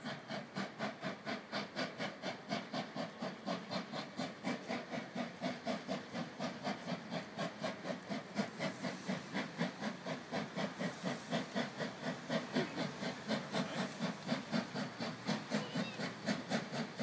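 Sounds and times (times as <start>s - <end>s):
steam locomotive chuffing: 0.0s - 17.0s.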